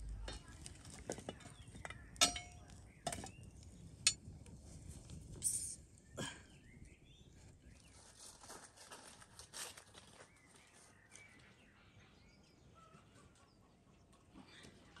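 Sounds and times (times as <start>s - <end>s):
footsteps on grass and leaves: 7.9s - 11.3s.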